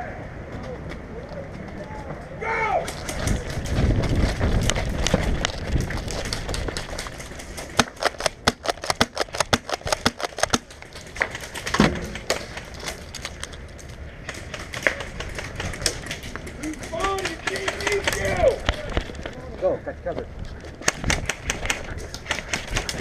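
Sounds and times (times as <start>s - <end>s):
handling noise: 0.5s - 23.0s
airsoft gunfire clicks and pops: 7.8s - 12.4s, 20.8s - 23.0s.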